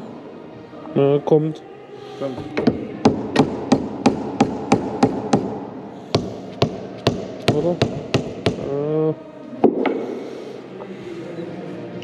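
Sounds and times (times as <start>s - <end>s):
hammer striking metal: 6.1s - 8.7s.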